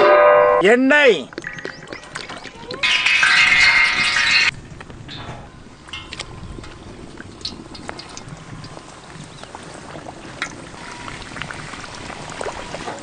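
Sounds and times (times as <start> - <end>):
hot oil sizzling and popping: 1.4 - 5.3.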